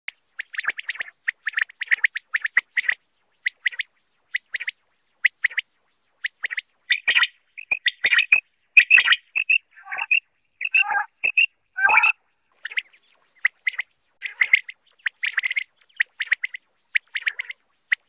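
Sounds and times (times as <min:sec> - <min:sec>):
quail calling: 0:06.9 - 0:17.6.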